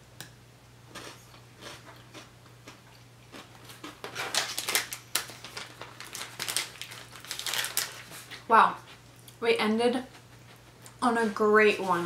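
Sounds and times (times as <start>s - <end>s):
person chewing crunchy biscuit: 0.9s - 8.5s.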